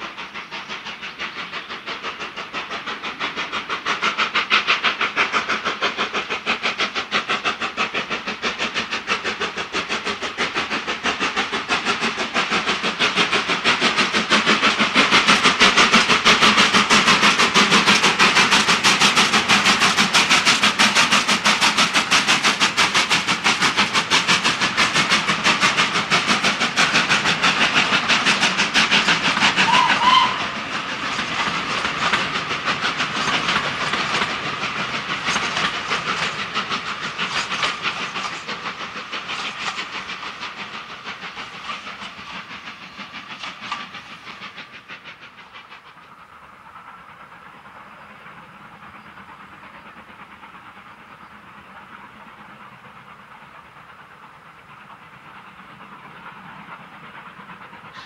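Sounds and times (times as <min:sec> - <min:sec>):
distant steam train rumble: 0:00.0 - 0:58.0
train wheels clattering over rails: 0:00.0 - 0:58.0
steam whistle toot: 0:29.6 - 0:30.6.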